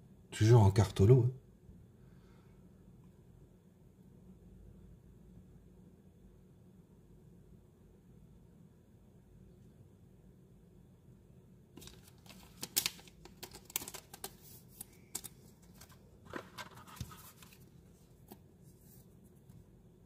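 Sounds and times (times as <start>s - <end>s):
plastic sleeve crinkling: 11.8s - 18.3s.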